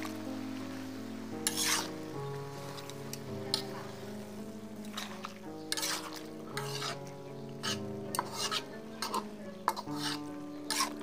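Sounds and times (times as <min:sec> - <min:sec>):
vegetables sizzling: 0:00.0 - 0:11.0
metal spatula scraping pan: 0:01.4 - 0:02.0, 0:05.0 - 0:11.0.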